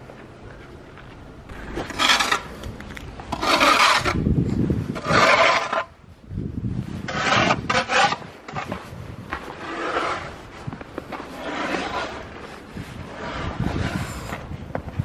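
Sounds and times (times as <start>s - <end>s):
snow shovel scraping pavement: 1.5s - 6.0s, 6.9s - 15.0s.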